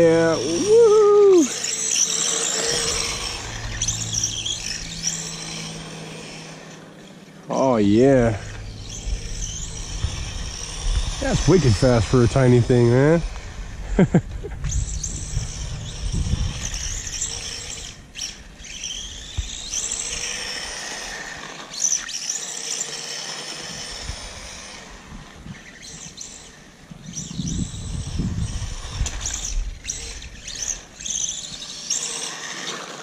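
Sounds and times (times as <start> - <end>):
toy car electric motor whine: 0.0 - 33.0
low rumble: 2.5 - 6.8, 7.8 - 19.7.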